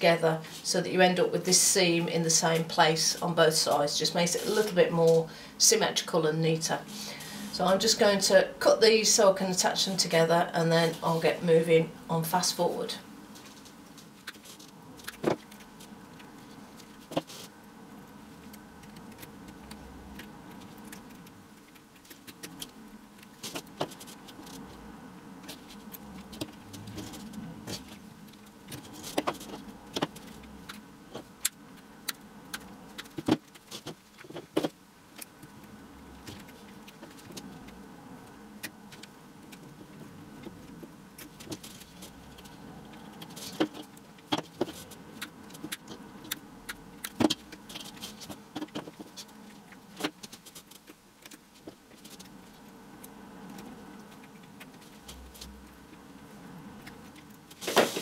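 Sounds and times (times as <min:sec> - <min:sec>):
low steady hum: 0:00.0 - 0:58.0.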